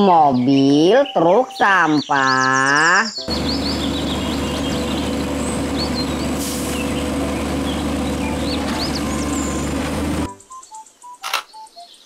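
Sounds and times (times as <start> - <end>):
birds chirping: 0.0 - 12.0
garbage truck engine running: 3.3 - 10.3
hydraulic arms lifting dumpster: 3.3 - 10.3.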